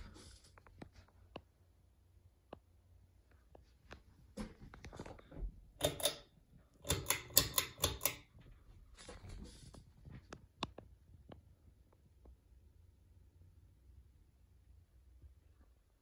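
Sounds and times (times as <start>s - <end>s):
pull-chain switch clicks: 5.8s - 6.2s, 6.8s - 8.3s.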